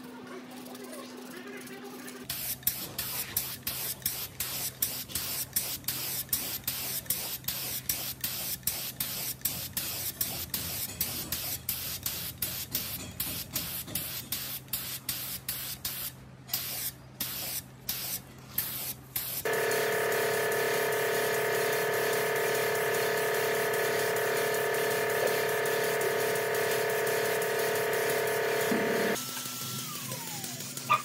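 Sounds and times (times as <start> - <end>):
paint spray gun hissing: 2.3 - 10.8, 13.6 - 29.2.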